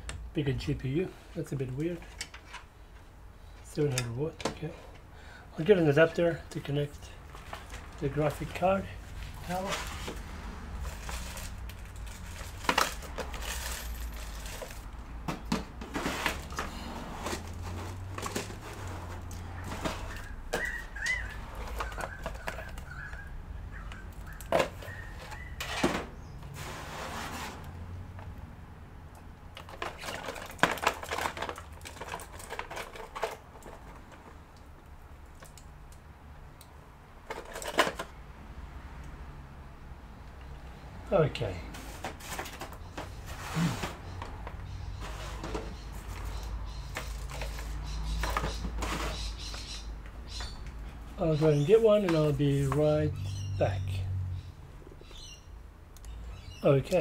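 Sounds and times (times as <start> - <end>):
computer parts being handled: 10.9 - 23.1, 29.5 - 34.4, 37.3 - 38.1.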